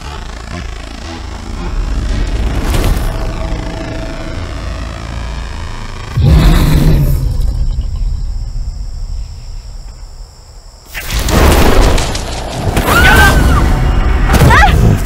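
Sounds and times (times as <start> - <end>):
crickets chirping: 6.1 - 14.3.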